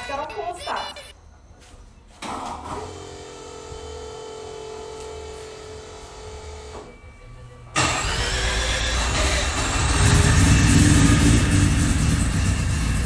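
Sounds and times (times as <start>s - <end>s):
mechanical whirring hum: 0.0s - 10.2s
rotary engine starting: 7.8s - 13.0s.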